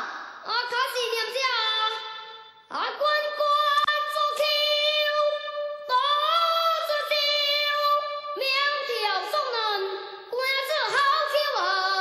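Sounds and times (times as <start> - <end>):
child singing opera: 2.7 - 12.0.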